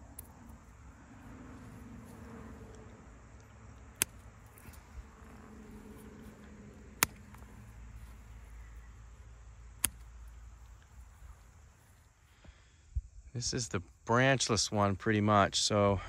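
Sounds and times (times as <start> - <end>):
pruners snipping branches: 2.0 - 8.9, 9.7 - 11.7.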